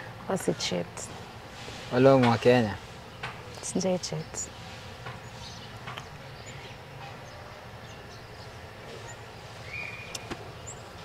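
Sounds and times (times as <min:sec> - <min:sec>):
faint bird calls: 0:03.5 - 0:11.0.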